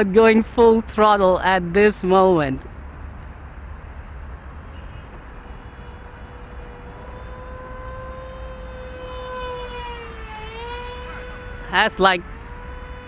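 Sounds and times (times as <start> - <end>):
electric motor and propeller whine: 2.7 - 13.0.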